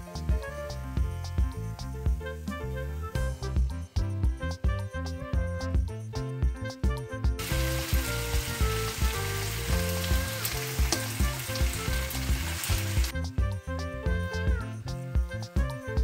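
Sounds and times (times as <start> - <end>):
background music: 0.0 - 16.0
meat and onions sizzling: 7.4 - 13.1.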